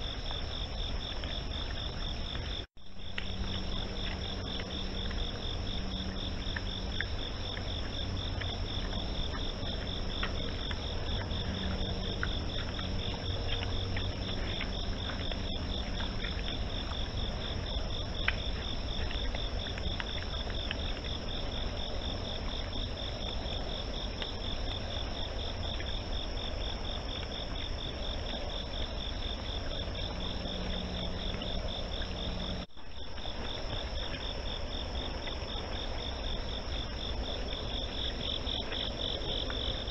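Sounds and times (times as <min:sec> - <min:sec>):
low rumble: 0:00.0 - 0:24.0
crickets chirping: 0:00.0 - 0:39.9
high insect trill: 0:00.0 - 0:39.9.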